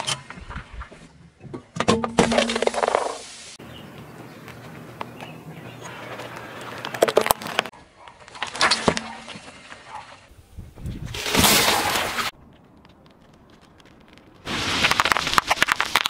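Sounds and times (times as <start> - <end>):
watermelon crunching under tyre: 4.6 - 7.7, 11.1 - 16.0
plastic pens cracking under tyre: 6.1 - 7.7, 12.3 - 16.0
tubes squashed with cracks and pops: 6.8 - 9.5, 10.8 - 16.0.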